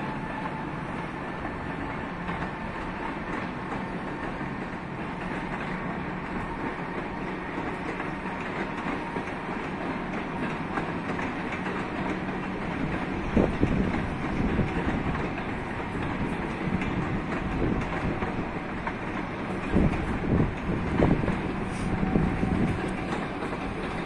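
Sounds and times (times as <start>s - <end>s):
train coaches rumbling on track: 0.0s - 24.0s
wheel clicks over rail joints: 1.4s - 24.0s.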